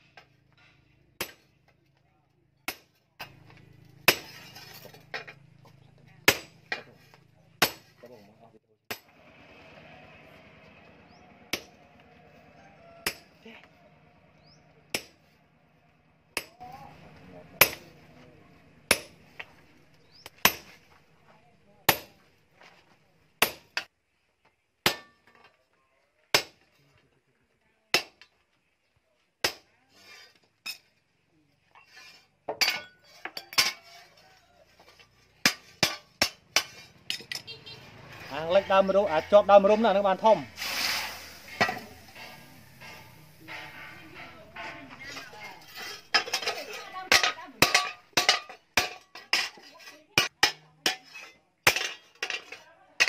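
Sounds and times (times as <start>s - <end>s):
hammer striking steel: 2.7s - 5.4s, 6.2s - 6.9s, 11.1s - 11.9s, 14.9s - 15.3s, 17.5s - 18.0s, 18.9s - 19.5s, 41.4s - 49.6s.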